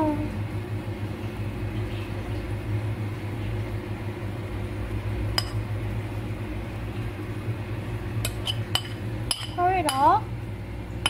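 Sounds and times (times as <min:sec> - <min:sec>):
steady low hum: 0:00.0 - 0:11.0
ceramic plate clinking on bowl: 0:08.2 - 0:10.1.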